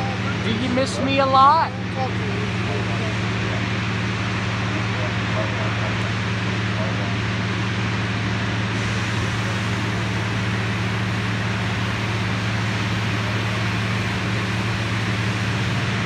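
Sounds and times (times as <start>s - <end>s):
motors humming: 0.0s - 16.0s
broad hiss: 8.7s - 16.0s.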